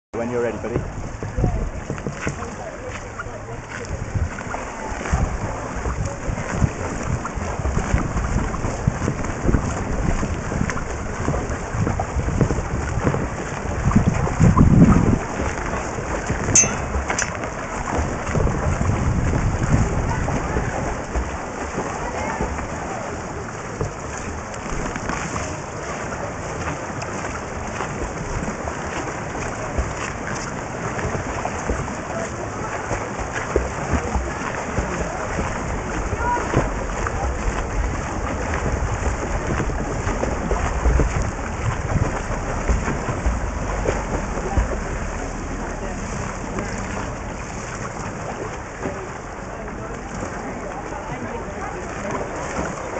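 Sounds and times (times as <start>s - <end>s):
underwater rushing and bubbling: 0.2s - 52.9s.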